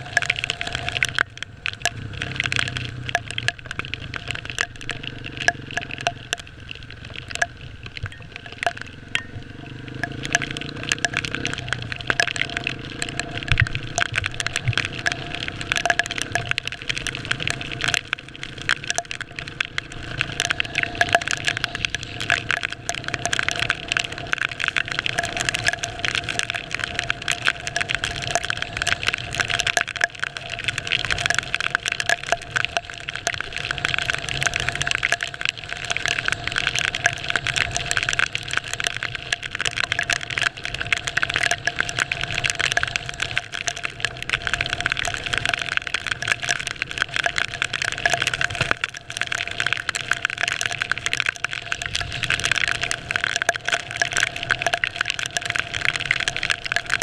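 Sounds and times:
wind and raindrops on camera: 0:00.0 - 0:57.0
motorcycle engine running: 0:08.8 - 0:11.9.

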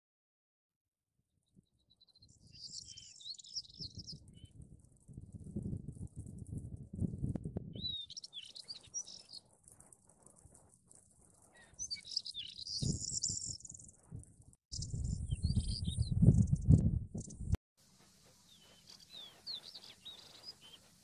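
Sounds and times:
small birds chirping: 0:01.6 - 0:06.6, 0:07.7 - 0:21.0
gusty low rumbling: 0:03.9 - 0:07.9, 0:14.1 - 0:17.6.

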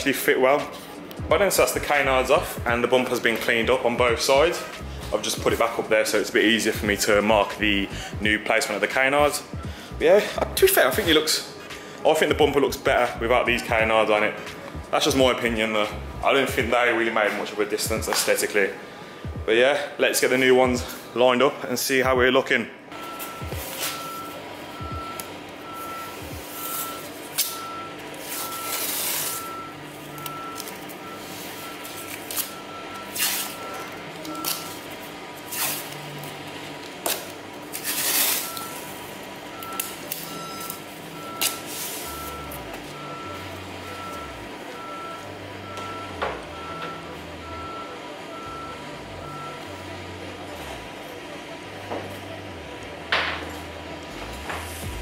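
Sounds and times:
vehicle reversing alarm beeping: 0:00.0 - 0:19.5, 0:22.9 - 0:54.0
tape ripping off a roll: 0:32.0 - 0:33.6, 0:35.5 - 0:36.0, 0:37.0 - 0:38.8.

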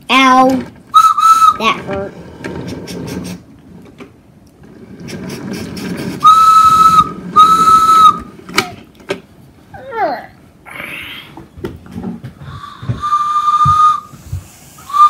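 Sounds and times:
whistle toots: 0:01.0 - 0:01.6, 0:06.2 - 0:08.3, 0:12.7 - 0:14.2, 0:14.8 - 0:15.0
toy trains rolling on wooden track: 0:01.6 - 0:03.4, 0:04.6 - 0:08.0.

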